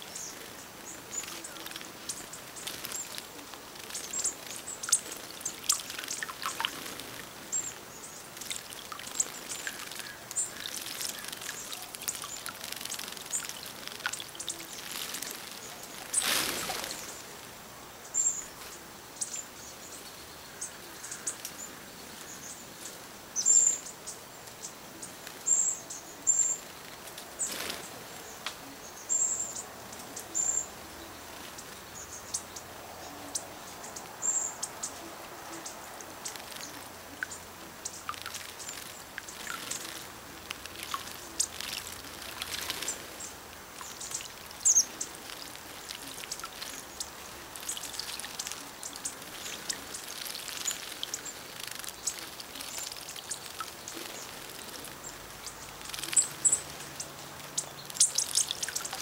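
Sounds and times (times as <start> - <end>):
birds splashing in water: 0.0 - 17.5, 35.6 - 59.0
songbirds chirping: 0.0 - 59.0.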